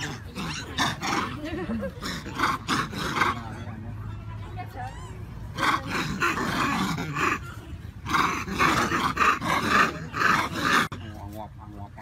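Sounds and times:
macaques screaming: 0:04.7 - 0:11.0.

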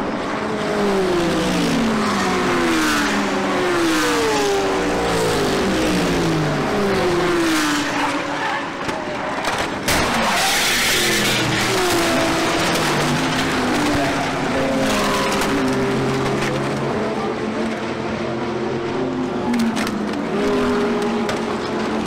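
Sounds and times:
race cars passing at speed: 0:00.0 - 0:22.0
car crash impact: 0:08.8 - 0:11.2.

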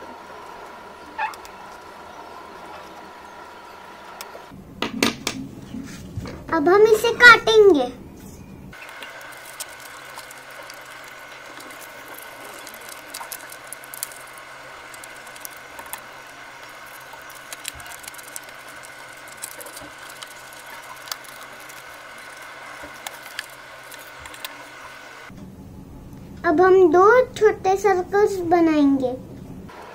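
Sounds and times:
faint high hum: 0:00.0 - 0:29.9
scissors snipping paper: 0:08.8 - 0:24.9.

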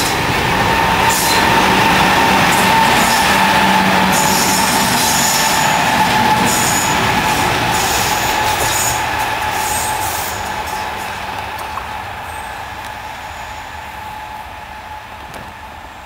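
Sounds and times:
locomotive howling tone: 0:00.0 - 0:16.0
train wheels rumbling on rail: 0:00.0 - 0:16.0
high wheel squeal: 0:00.7 - 0:11.2.

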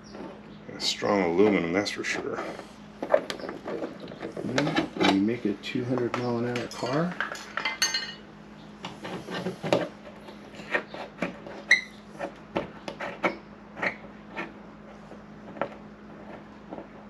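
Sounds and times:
tools tapping on metal panel: 0:03.0 - 0:08.2
metallic ring: 0:06.7 - 0:08.2.

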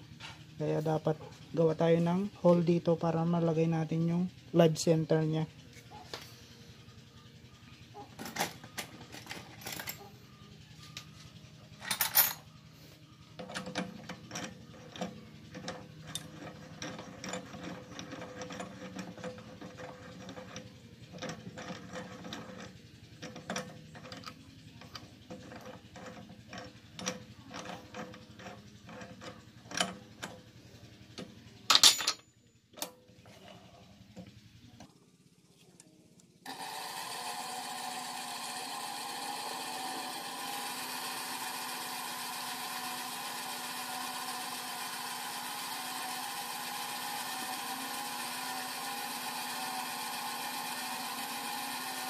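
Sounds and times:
metal parts clicking and knocking: 0:08.0 - 0:10.1, 0:11.8 - 0:12.5, 0:13.4 - 0:30.5, 0:31.1 - 0:33.0.

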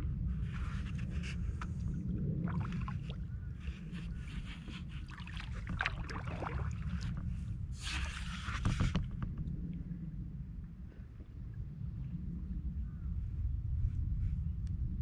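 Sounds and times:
low rumble: 0:00.0 - 0:04.8, 0:05.4 - 0:15.0
paddle splashing water: 0:02.5 - 0:09.2.

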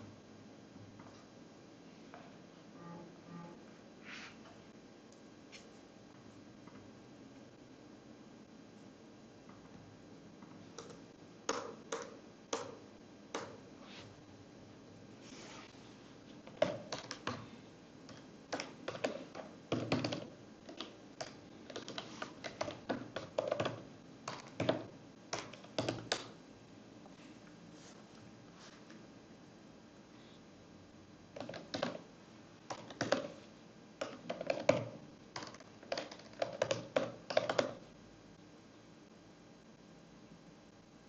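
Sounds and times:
typing on computer keyboard: 0:16.5 - 0:17.5, 0:18.1 - 0:26.3, 0:31.4 - 0:32.0, 0:32.7 - 0:33.4, 0:34.0 - 0:37.8.

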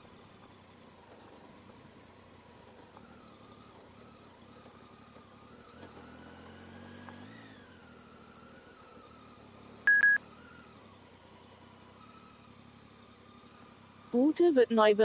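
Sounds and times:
loud electronic beep: 0:09.9 - 0:10.2.

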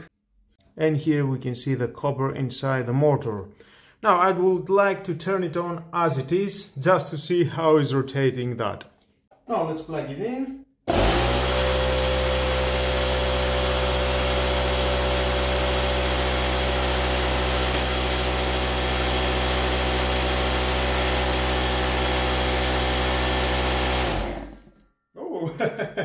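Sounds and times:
air compressor motor running: 0:10.9 - 0:24.7.

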